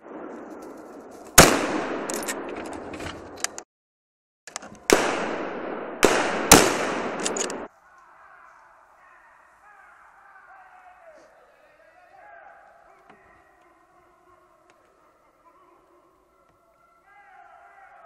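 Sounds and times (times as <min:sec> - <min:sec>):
rifle shots echoing: 0:00.0 - 0:02.5, 0:04.9 - 0:07.7.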